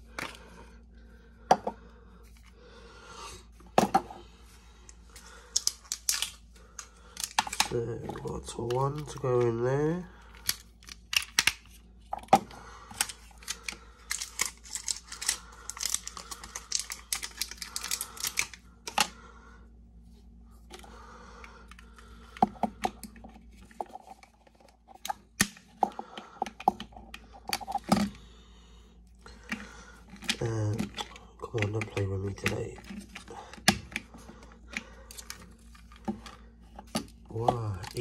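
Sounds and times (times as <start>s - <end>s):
batteries clicking into plastic holder: 5.5s - 9.3s, 10.3s - 19.1s.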